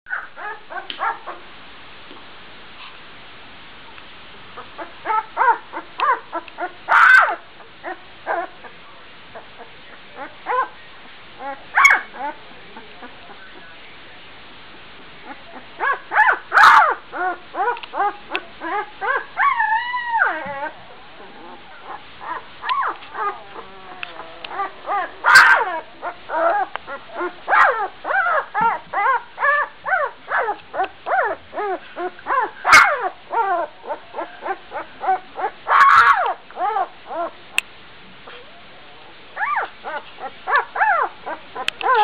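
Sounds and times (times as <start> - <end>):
puppy crying: 0.1 - 1.4, 4.8 - 8.5, 11.4 - 12.4, 15.3 - 37.4, 39.4 - 42.0
puppy yapping: 0.1 - 1.4, 4.8 - 8.5, 11.4 - 12.4, 15.8 - 20.8, 21.4 - 37.3, 39.4 - 42.0.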